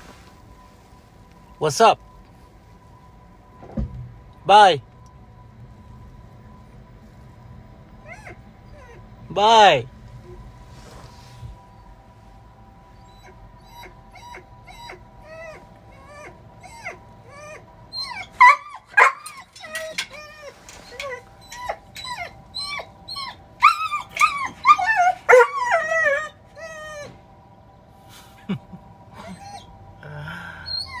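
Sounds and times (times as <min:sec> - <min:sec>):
dog whining and whimpering: 0:08.0 - 0:09.3, 0:12.9 - 0:27.3, 0:29.1 - 0:31.0.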